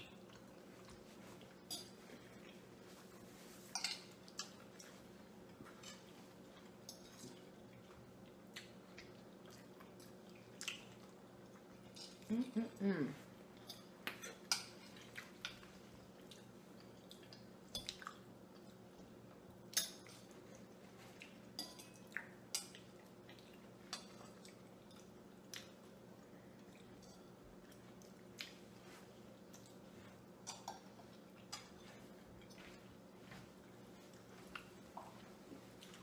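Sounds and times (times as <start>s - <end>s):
forks clinking on plates: 3.7s - 4.2s, 26.9s - 27.4s, 30.4s - 32.8s.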